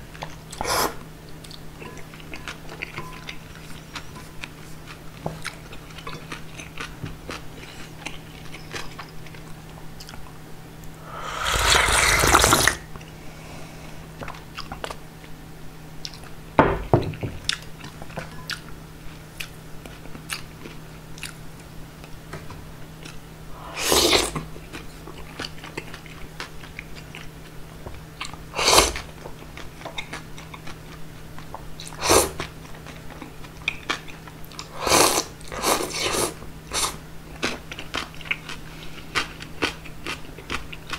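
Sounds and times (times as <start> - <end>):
slurping noodles: 0.5 - 1.0, 11.0 - 12.8, 23.6 - 24.4, 28.6 - 29.1, 31.9 - 32.4, 34.7 - 37.0.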